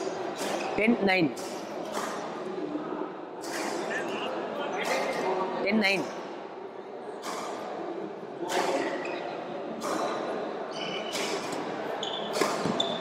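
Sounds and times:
shoe squeaks on court: 0:10.7 - 0:13.0.

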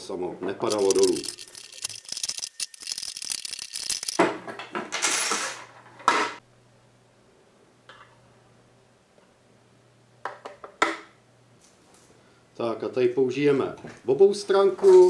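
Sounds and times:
small metallic clicks and rattles: 0:00.7 - 0:04.3.

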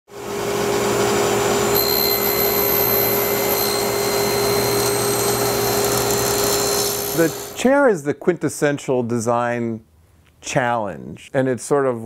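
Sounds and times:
table saw cutting wood: 0:00.2 - 0:07.6
high saw whine: 0:00.3 - 0:07.7.

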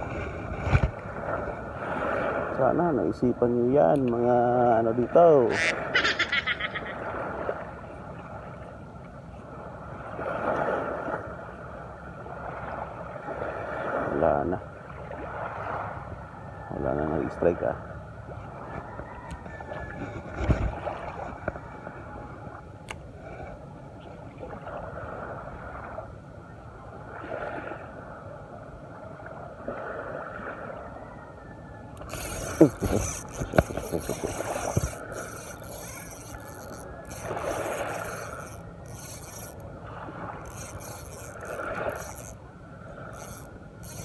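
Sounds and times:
fishing reel cranking: 0:05.5 - 0:06.8, 0:32.0 - 0:39.7, 0:40.4 - 0:42.4, 0:43.1 - 0:44.0.

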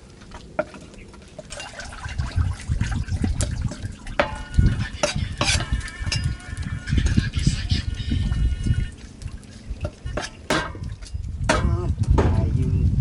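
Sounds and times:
wet squelching of fish: 0:00.0 - 0:08.0
low muffled thuds: 0:09.8 - 0:13.0.

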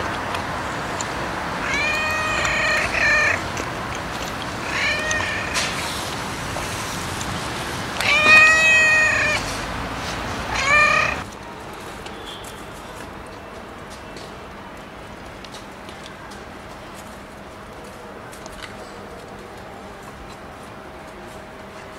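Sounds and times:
cat meowing: 0:01.5 - 0:06.2, 0:07.9 - 0:09.6, 0:10.4 - 0:11.3.

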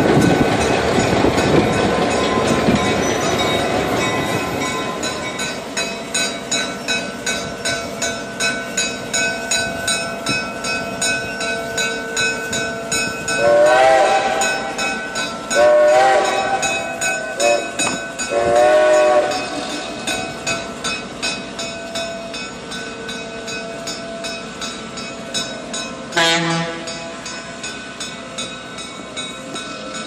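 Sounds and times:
locomotive bell ringing: 0:00.0 - 0:30.0
locomotive air horn blasts: 0:13.4 - 0:14.8, 0:15.6 - 0:19.9, 0:26.2 - 0:26.9.

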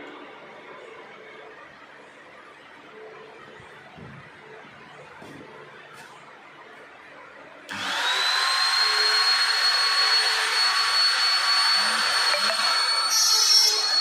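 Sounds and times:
electric router whining: 0:07.7 - 0:14.0.

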